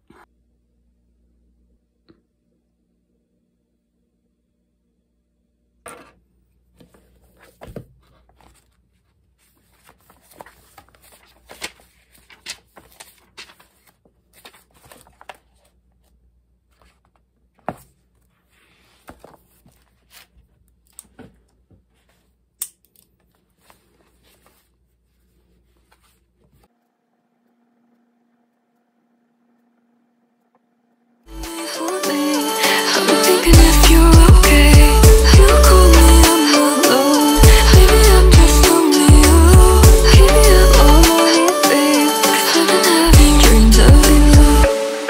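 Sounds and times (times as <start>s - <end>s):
notebook pages rustling: 6.8s - 22.4s, 23.1s - 26.7s.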